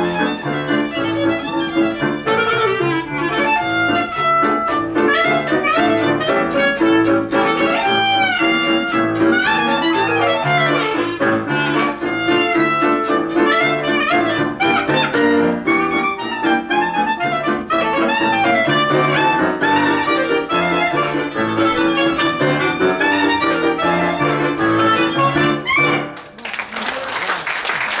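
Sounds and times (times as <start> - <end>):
keyboard bass accompaniment: 0.0 - 26.2
violin and clarinet polka: 0.0 - 26.2
applause: 26.1 - 28.0.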